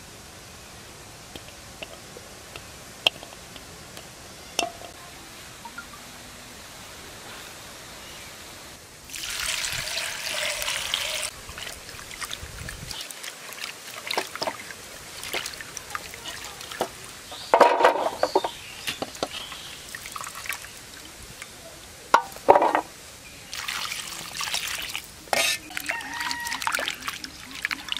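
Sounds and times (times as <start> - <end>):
water pouring: 9.1 - 17.3, 19.1 - 21.1, 23.5 - 27.9.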